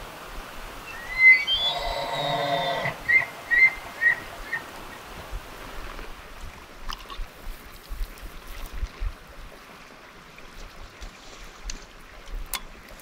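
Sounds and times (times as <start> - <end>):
elk bugling: 0.9 - 4.7.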